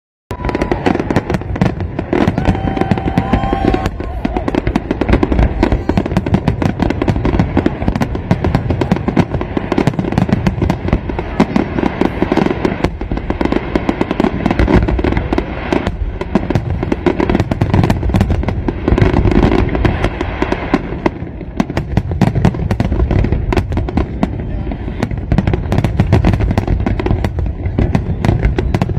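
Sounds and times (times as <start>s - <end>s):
fireworks bangs and crackles: 0.3s - 28.9s.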